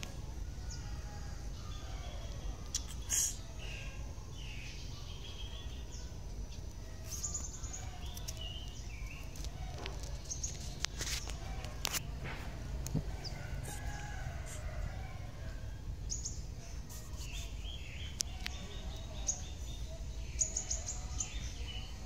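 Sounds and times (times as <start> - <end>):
steady low rumble: 0.0 - 22.0
short bird calls: 2.7 - 4.0.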